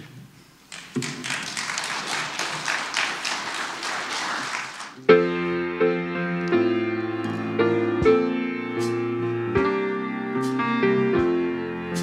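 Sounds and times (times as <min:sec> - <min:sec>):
congregation clapping: 0:00.7 - 0:05.1
grand piano chords: 0:05.0 - 0:12.0.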